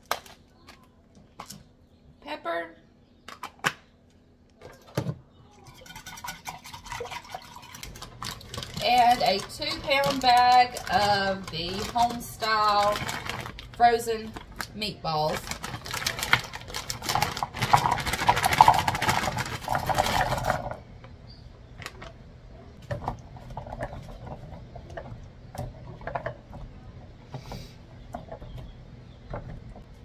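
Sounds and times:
frozen meatballs rattling into pot: 0:05.7 - 0:20.8
plastic bag crinkling: 0:07.5 - 0:20.8.

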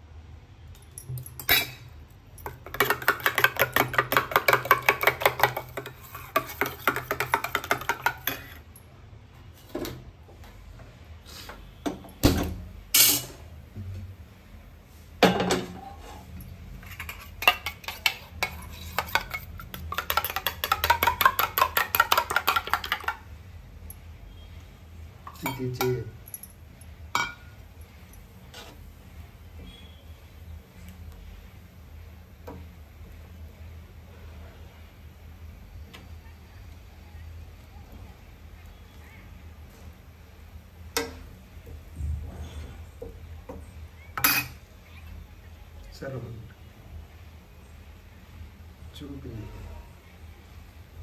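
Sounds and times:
spoon beating egg in metal bowl: 0:02.4 - 0:08.6, 0:16.8 - 0:23.3.

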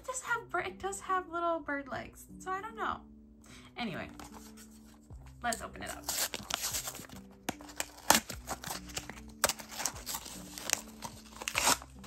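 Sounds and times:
paper and card rustling: 0:04.1 - 0:12.0
seal peeling off: 0:07.6 - 0:12.0.

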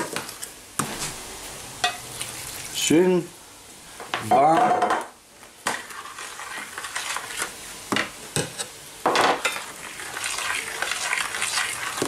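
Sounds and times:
wet mashing and stirring: 0:01.9 - 0:02.9, 0:05.7 - 0:07.6, 0:09.4 - 0:12.0.

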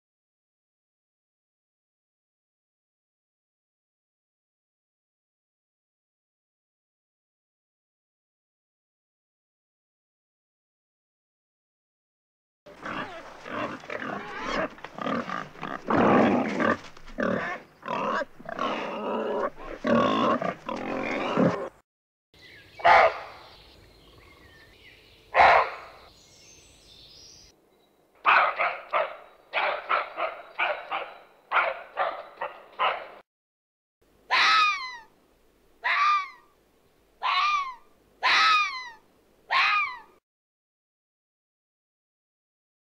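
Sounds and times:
loud animal calls: 0:12.7 - 0:21.8, 0:34.3 - 0:35.1, 0:35.8 - 0:36.4, 0:37.2 - 0:40.1
wild boar grunting and squealing: 0:12.7 - 0:21.8
roe deer alarm barks: 0:22.8 - 0:23.6, 0:25.3 - 0:26.1, 0:28.2 - 0:33.2, 0:37.2 - 0:38.9.

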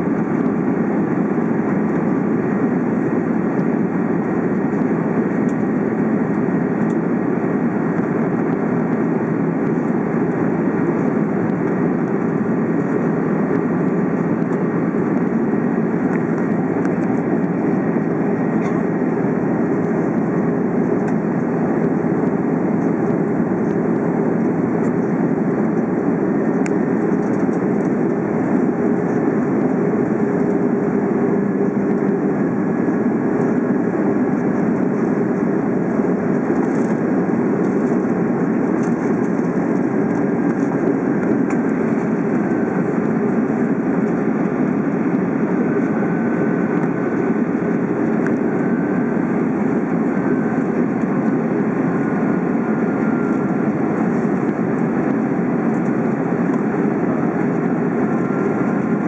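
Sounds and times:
airliner cabin engine noise: 0:00.0 - 0:59.0.

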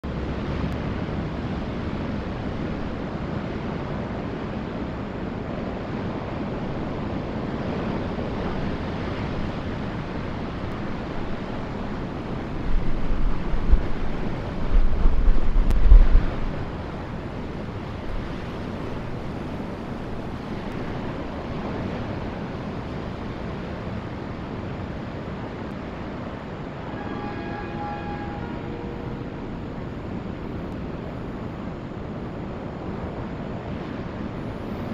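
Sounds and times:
low surf rumble: 0:00.0 - 0:34.9
ocean surf breaking: 0:00.0 - 0:34.9
wind: 0:00.0 - 0:34.9
train horn chord: 0:26.6 - 0:30.4.

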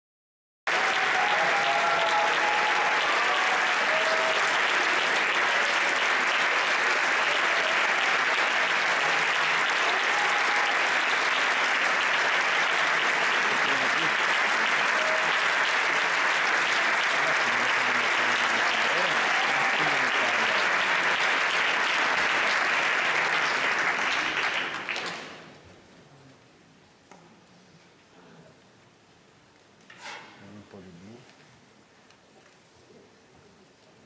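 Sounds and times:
audience applauding: 0:00.7 - 0:25.6.

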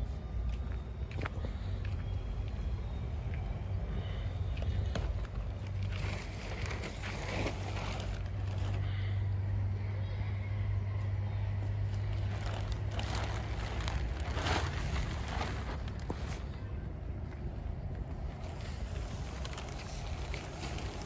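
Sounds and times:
steady low hum: 0:00.0 - 0:21.0
plastic sheeting rustling: 0:05.6 - 0:08.9, 0:12.0 - 0:16.5, 0:18.6 - 0:21.0.

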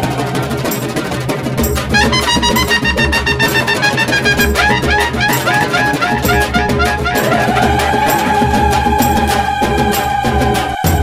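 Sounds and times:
gentle descending melody: 0:02.0 - 0:07.8
pulsing bass beat: 0:02.0 - 0:07.8.

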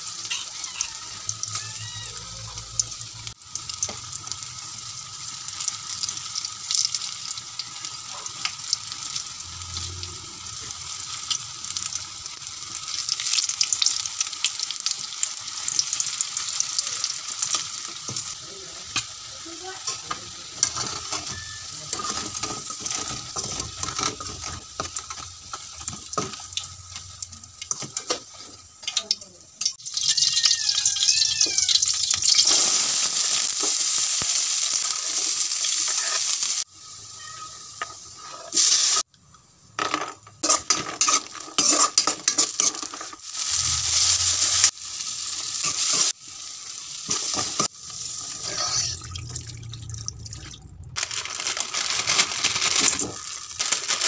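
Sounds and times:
oil sizzling: 0:00.0 - 0:54.0
metal spoon clinking and scraping pan: 0:19.8 - 0:27.1, 0:39.8 - 0:43.2.

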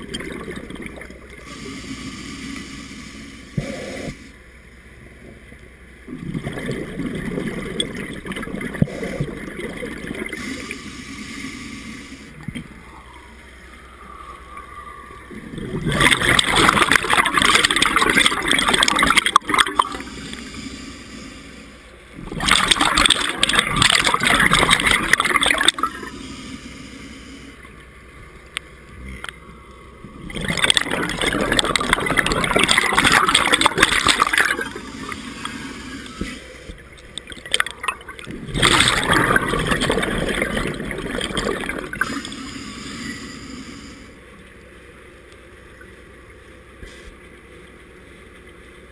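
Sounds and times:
bubbling regulator exhalations: 0:06.1 - 0:12.0, 0:15.3 - 0:21.5, 0:22.2 - 0:27.6, 0:30.0 - 0:44.0.

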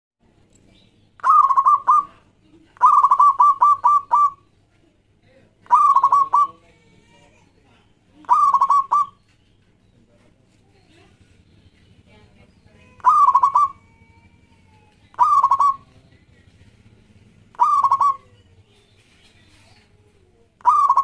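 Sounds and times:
dove cooing: 0:01.2 - 0:04.6, 0:05.7 - 0:06.6, 0:08.2 - 0:09.3, 0:12.8 - 0:18.8, 0:20.6 - 0:21.0.

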